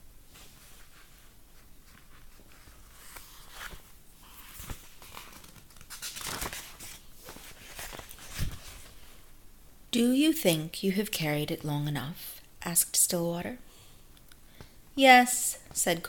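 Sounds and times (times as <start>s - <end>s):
book pages rustling: 0.3s - 9.2s.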